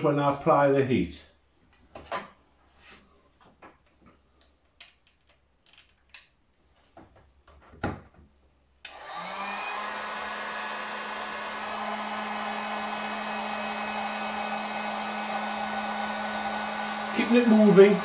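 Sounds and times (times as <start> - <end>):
heat gun fan blowing: 8.8 - 18.0.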